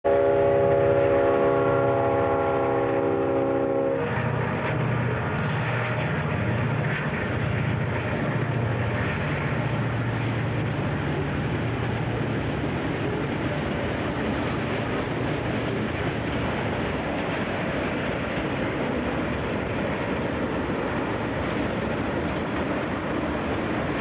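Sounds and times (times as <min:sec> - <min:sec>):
train horn chord: 0:00.0 - 0:04.8
train approaching: 0:00.0 - 0:24.0
diesel engines rumbling: 0:00.1 - 0:23.8.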